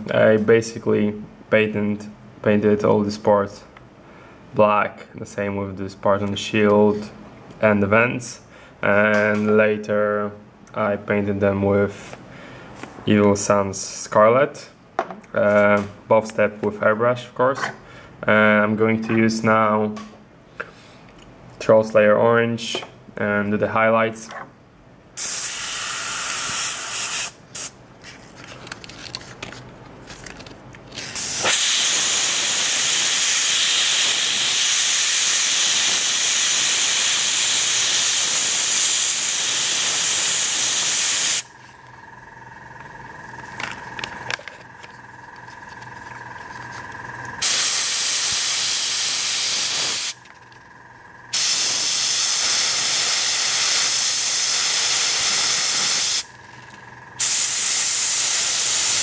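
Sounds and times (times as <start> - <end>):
airbrush spraying hiss: 25.2 - 27.7, 47.4 - 50.2, 51.3 - 56.2, 57.2 - 59.0.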